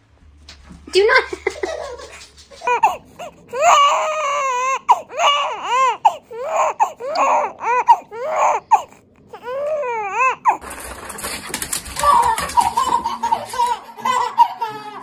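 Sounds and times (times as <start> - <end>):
newborn baby crying: 2.6 - 10.7, 11.9 - 15.0.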